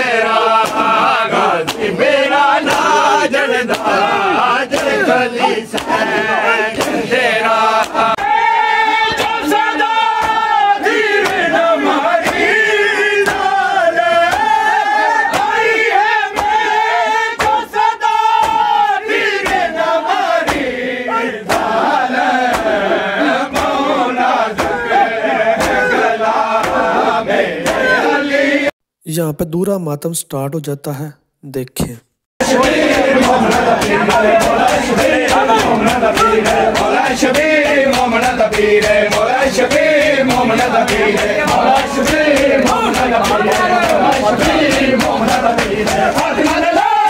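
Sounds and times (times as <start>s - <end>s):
crowd of men chanting: 0.0s - 28.8s, 32.4s - 47.0s
hands slapping bare chests: 0.3s - 2.0s, 2.6s - 3.0s, 3.6s - 8.4s, 9.1s - 20.8s, 21.4s - 25.0s, 25.6s - 26.9s, 32.6s - 47.0s.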